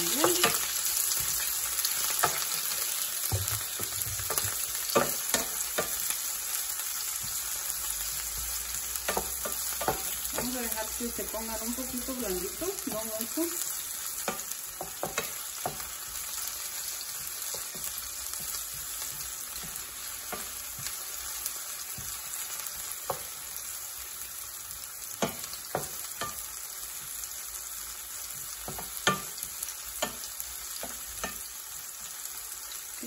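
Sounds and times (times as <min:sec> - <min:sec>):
onion sizzling in hot oil: 0:00.0 - 0:33.0
wooden spoon knocking on pan: 0:03.2 - 0:06.1, 0:07.1 - 0:11.0, 0:14.2 - 0:23.4, 0:25.2 - 0:26.4, 0:28.2 - 0:31.5.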